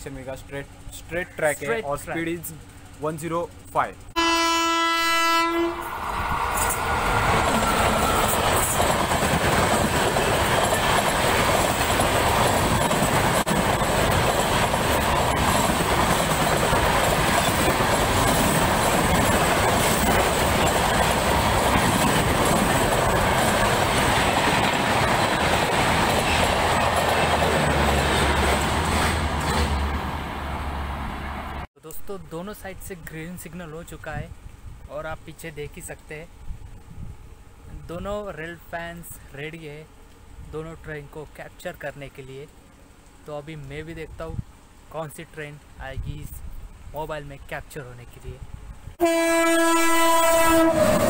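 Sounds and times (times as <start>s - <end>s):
train horn: 4.2s - 6.0s, 49.0s - 51.0s
train wheels rushing on rails: 5.2s - 31.7s, 49.8s - 51.0s.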